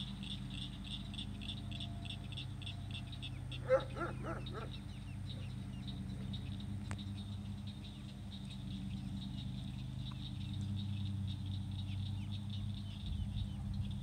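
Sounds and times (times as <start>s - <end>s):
ducklings peeping: 0.0s - 14.0s.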